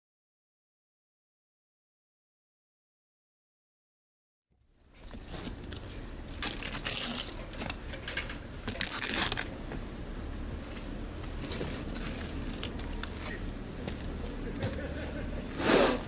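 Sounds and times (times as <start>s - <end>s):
scraping and crinkling of roof underlayment: 5.0s - 7.8s, 8.7s - 9.5s, 11.3s - 14.8s.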